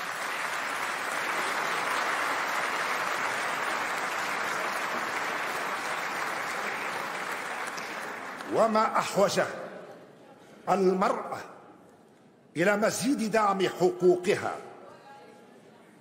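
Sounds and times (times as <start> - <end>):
large audience applauding: 0.0 - 9.2.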